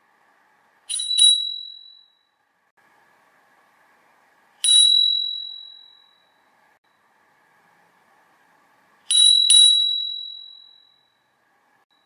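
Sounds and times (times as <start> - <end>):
bicycle bell dinging: 0.9 - 2.4, 4.6 - 6.5, 9.1 - 11.3.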